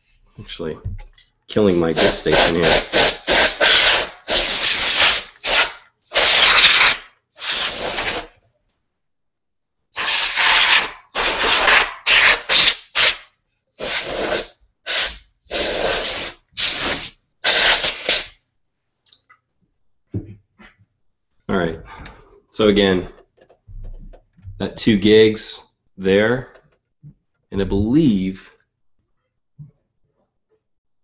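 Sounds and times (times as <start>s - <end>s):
compressed air hissing blasts: 1.9s - 8.3s, 10.0s - 13.2s, 13.8s - 18.4s.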